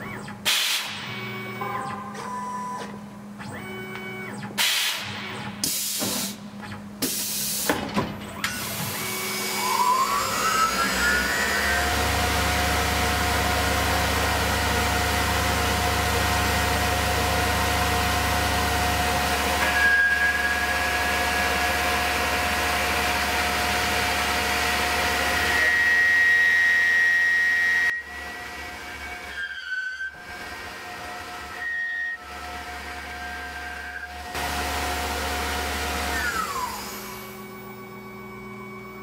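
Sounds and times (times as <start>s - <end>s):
pneumatic hisses and clunks: 0.4s - 1.1s, 4.5s - 6.4s, 7.0s - 9.0s
spindle whine and hum: 9.0s - 39.0s.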